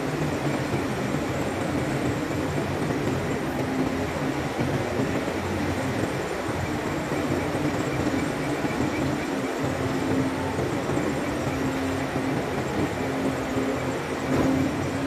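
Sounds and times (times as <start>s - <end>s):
crane and diesel engines running: 0.0s - 15.0s.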